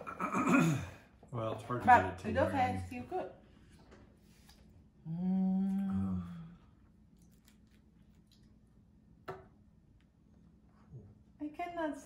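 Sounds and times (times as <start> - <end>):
woman humming: 5.0 - 6.7.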